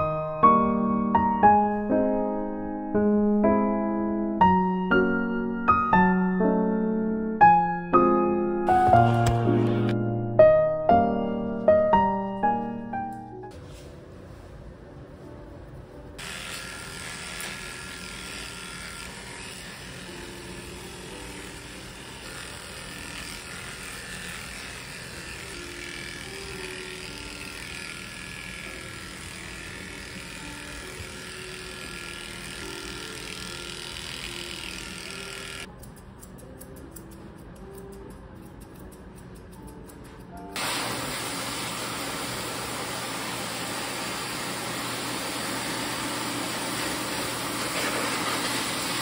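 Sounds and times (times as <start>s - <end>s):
soft piano music: 0.0s - 16.2s, 25.3s - 42.4s
electric clipper running: 16.2s - 35.7s, 40.6s - 49.0s
scissors snipping: 35.6s - 40.6s.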